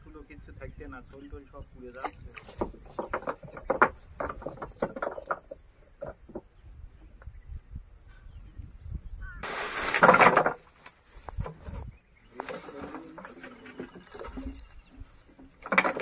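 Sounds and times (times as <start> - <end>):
plastic sack rustling: 9.4 - 11.7
fishing net handling: 9.4 - 16.0.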